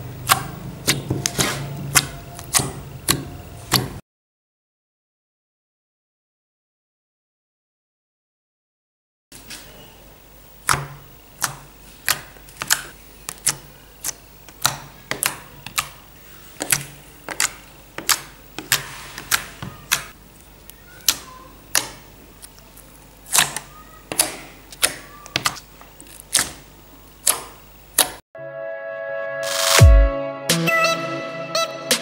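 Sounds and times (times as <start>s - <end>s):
fingertips popping slime: 10.6s - 16.0s, 16.6s - 22.6s, 23.2s - 26.6s.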